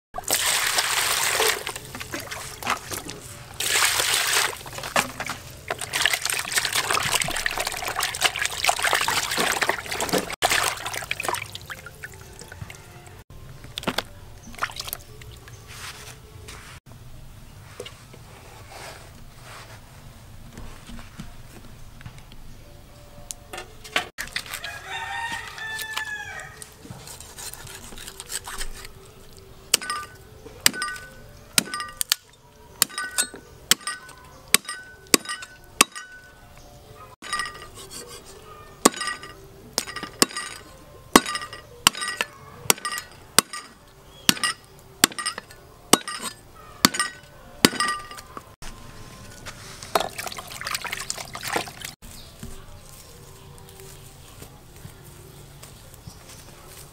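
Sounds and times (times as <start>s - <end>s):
rooster crowing: 12.1s - 13.2s, 24.5s - 26.8s.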